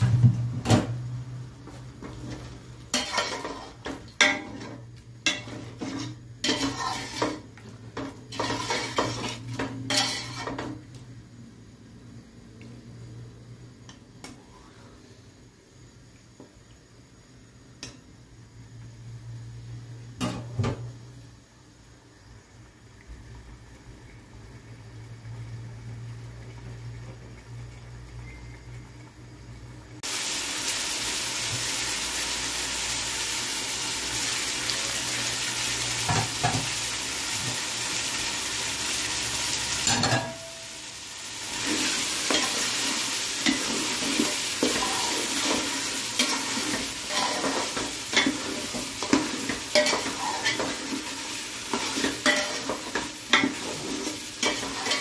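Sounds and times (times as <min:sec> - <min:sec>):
curry sizzling in a pot: 0:00.0 - 0:55.0
metal spatula scraping a pot: 0:02.2 - 0:10.7, 0:43.4 - 0:50.9, 0:51.7 - 0:55.0.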